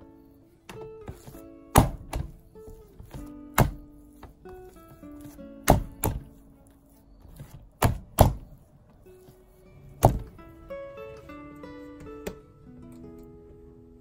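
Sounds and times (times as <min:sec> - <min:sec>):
soft background music: 0:00.0 - 0:14.0
dough slapped on worktop: 0:05.6 - 0:06.3, 0:10.0 - 0:10.3.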